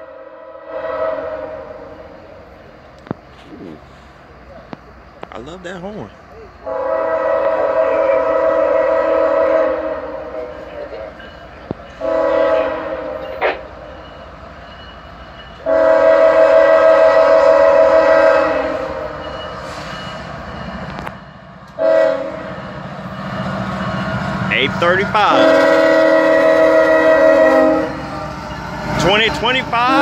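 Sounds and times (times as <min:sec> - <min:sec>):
locomotive air horn blasts: 0:00.0 - 0:02.0, 0:06.6 - 0:10.6, 0:12.0 - 0:13.7, 0:15.6 - 0:19.2, 0:21.8 - 0:22.5, 0:25.2 - 0:28.1, 0:29.8 - 0:30.0
train engine rumble: 0:00.0 - 0:30.0.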